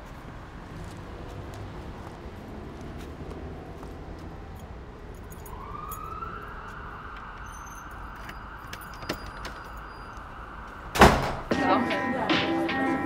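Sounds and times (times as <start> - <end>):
traffic rumble: 0.0 - 13.0
distant siren wailing: 5.2 - 13.0.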